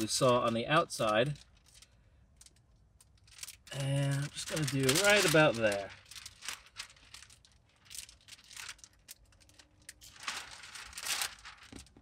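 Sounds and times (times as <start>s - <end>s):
plastic film crinkling: 0.0s - 12.0s.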